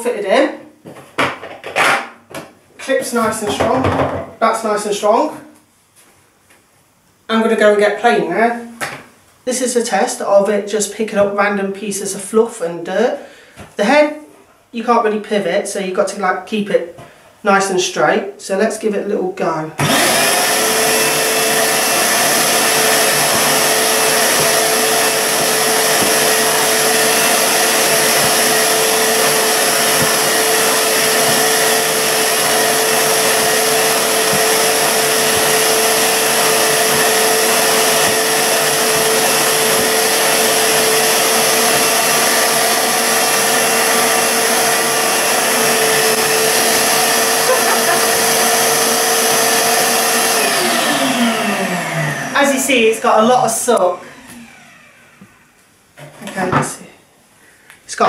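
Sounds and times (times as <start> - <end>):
vacuum cleaner whining: 19.8 - 56.4.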